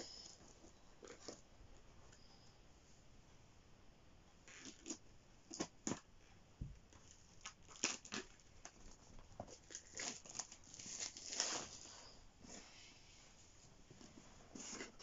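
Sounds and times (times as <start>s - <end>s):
packaging crinkling and tearing: 6.9s - 11.9s.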